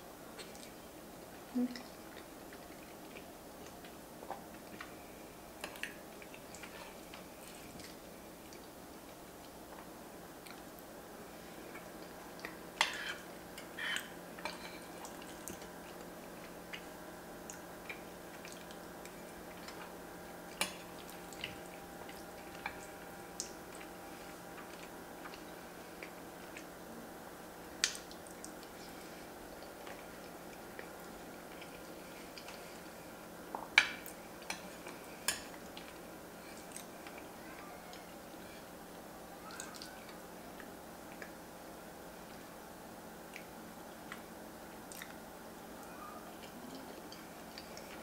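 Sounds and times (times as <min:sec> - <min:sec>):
low steady hum: 0:00.0 - 0:48.0
wet chewing and mouth sounds: 0:00.3 - 0:10.8, 0:11.5 - 0:26.8, 0:27.6 - 0:41.4, 0:43.2 - 0:48.0.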